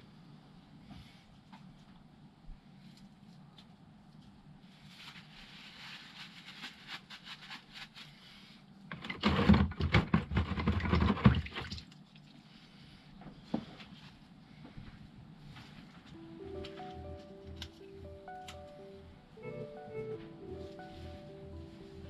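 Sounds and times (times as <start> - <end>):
liquid sloshing and splashing: 10.4 - 12.4.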